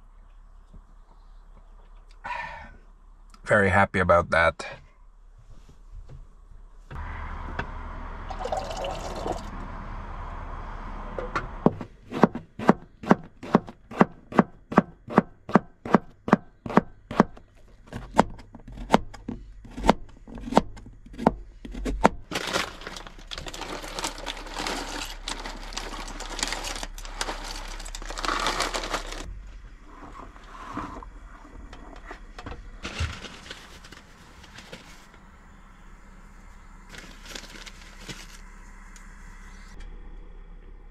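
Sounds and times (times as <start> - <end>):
water pouring: 8.3 - 9.5
knife chopping vegetables: 11.7 - 17.4.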